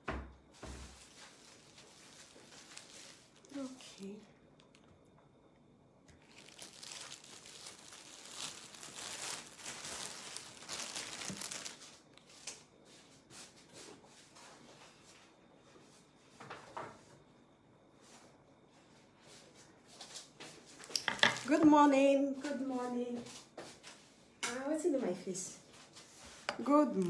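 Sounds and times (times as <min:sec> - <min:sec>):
plastic crinkling: 0:00.8 - 0:05.1, 0:06.0 - 0:12.6, 0:20.8 - 0:21.9, 0:26.5 - 0:27.0.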